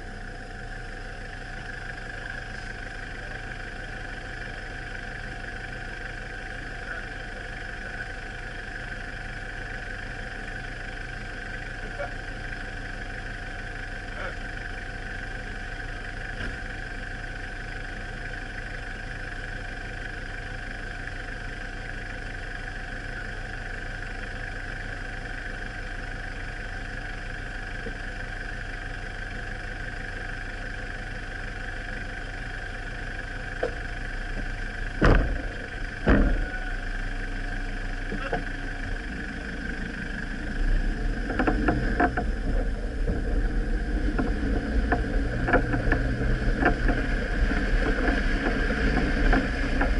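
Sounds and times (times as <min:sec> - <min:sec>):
vehicle driving on dirt track: 0:00.0 - 0:49.9
vehicle engine idling: 0:00.0 - 0:49.9
bumps and rattles: 0:33.6 - 0:49.9
car doors slamming: 0:35.0 - 0:36.9.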